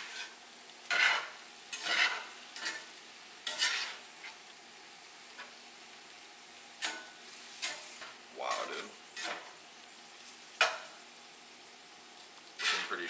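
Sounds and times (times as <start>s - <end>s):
spatula scraping skillet: 0.0s - 4.5s, 6.7s - 11.0s, 12.2s - 13.0s
meat and vegetables sizzling: 0.0s - 13.0s.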